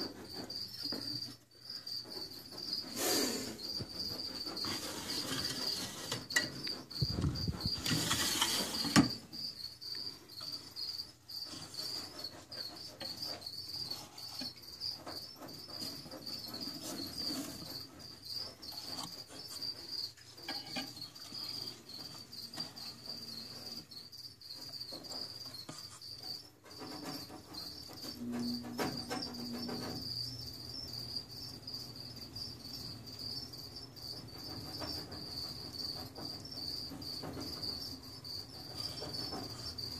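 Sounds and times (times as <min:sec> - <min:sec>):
crickets chirping: 0:00.0 - 0:39.9
rustling scrape: 0:02.1 - 0:09.3, 0:10.6 - 0:24.0.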